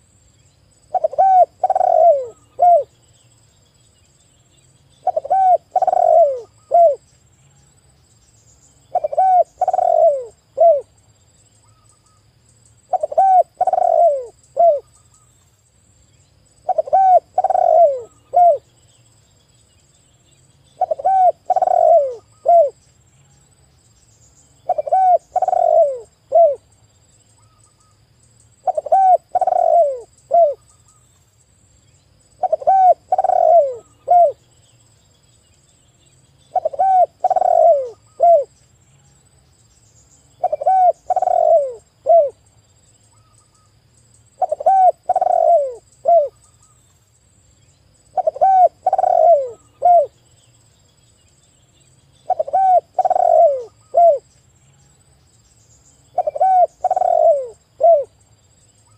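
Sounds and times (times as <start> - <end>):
dove cooing: 0.9 - 3.0, 5.0 - 7.0, 8.9 - 10.9, 12.9 - 14.9, 16.6 - 18.7, 20.8 - 22.8, 24.6 - 26.6, 28.6 - 30.6, 32.4 - 34.4, 36.5 - 38.6, 40.4 - 42.4, 44.4 - 46.4, 48.1 - 50.2, 52.2 - 54.3, 56.1 - 58.2.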